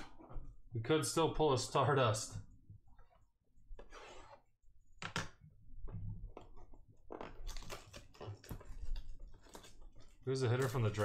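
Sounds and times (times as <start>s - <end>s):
plastic shrink wrap crackling: 7.2s - 11.0s.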